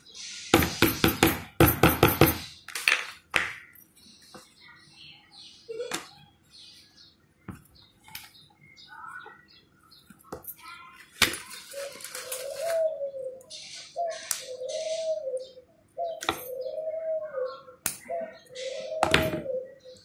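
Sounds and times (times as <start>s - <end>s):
bird cooing: 11.5s - 20.0s.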